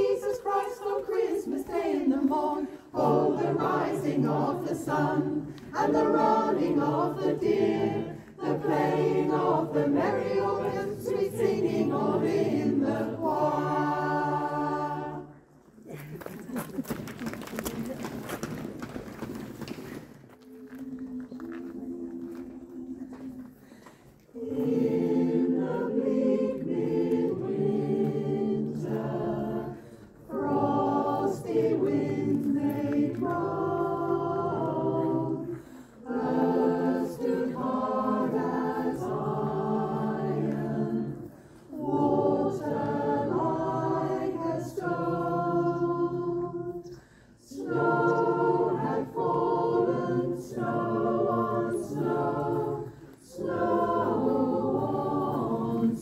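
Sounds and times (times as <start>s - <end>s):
choir singing unaccompanied: 0.0s - 15.6s, 20.4s - 56.0s
singers breathing: 8.1s - 8.4s, 23.5s - 24.3s, 29.8s - 30.2s, 35.5s - 36.1s, 41.3s - 41.7s, 46.8s - 47.4s, 52.9s - 53.2s.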